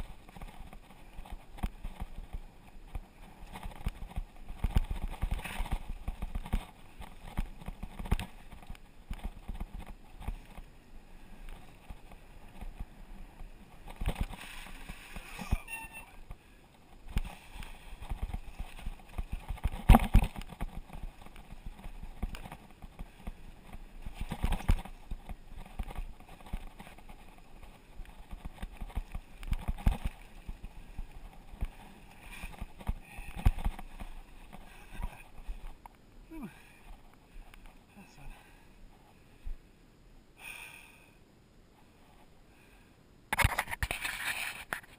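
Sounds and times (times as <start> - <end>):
mountain bike rattling and knocking: 0.0 - 35.9.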